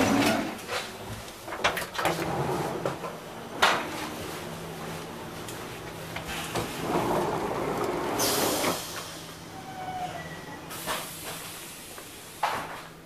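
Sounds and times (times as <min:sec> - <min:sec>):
low hum of standing train: 0:00.0 - 0:13.0
sliding door rushing open: 0:01.9 - 0:04.2, 0:06.2 - 0:11.6.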